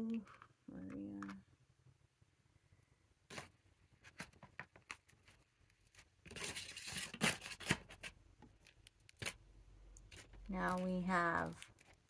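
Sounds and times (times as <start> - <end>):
packaging tearing and crinkling: 4.1 - 9.4, 10.1 - 12.0.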